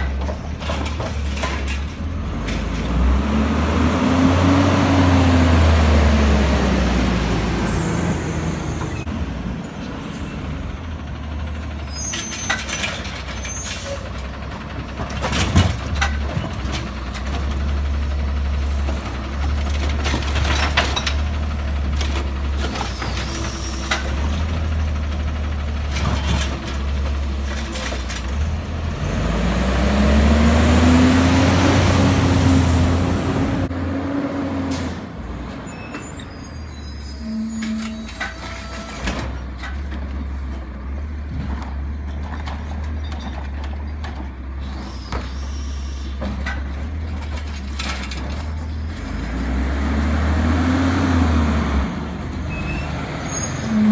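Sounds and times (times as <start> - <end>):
knocks and clanks of bins: 0.0 - 2.9, 14.9 - 17.5
garbage truck diesel engine: 0.0 - 53.9.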